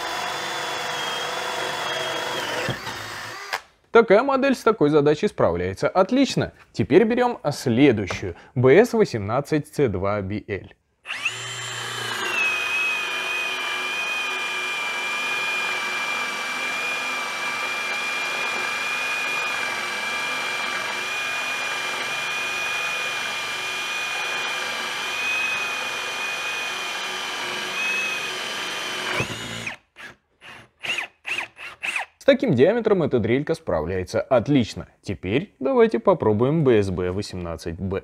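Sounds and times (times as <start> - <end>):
cordless drill boring into wood: 0.0 - 3.7, 11.0 - 32.1.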